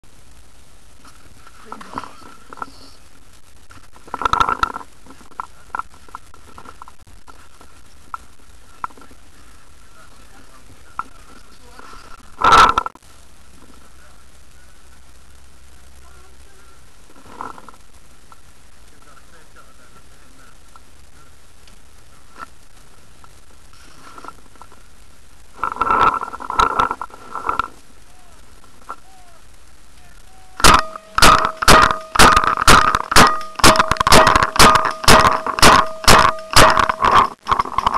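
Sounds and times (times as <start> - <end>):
faint high whine: 0.0 - 37.9
rustling scraping and knocking: 3.7 - 9.4, 10.3 - 13.0, 17.0 - 17.8, 23.7 - 24.9, 25.6 - 27.9, 30.6 - 37.9.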